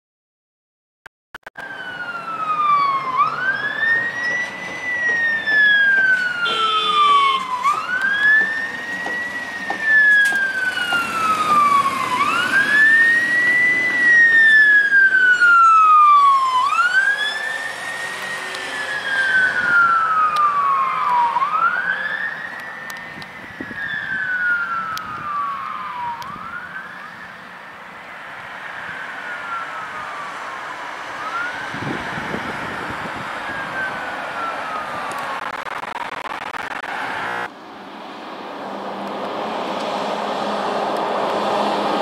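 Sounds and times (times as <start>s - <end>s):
emergency sirens wailing: 1.6s - 37.5s
horn-like tone: 6.4s - 7.5s.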